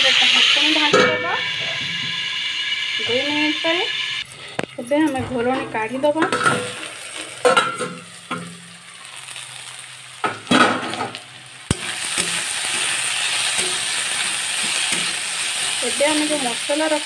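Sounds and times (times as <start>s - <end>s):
potatoes sizzling in hot oil: 0.0s - 17.0s
metal lid clattering: 6.2s - 6.8s, 7.4s - 8.5s.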